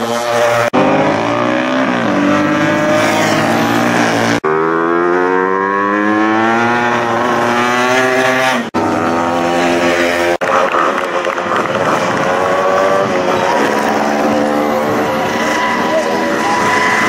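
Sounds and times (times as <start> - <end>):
motorcycle engines revving past: 0.0 - 17.0.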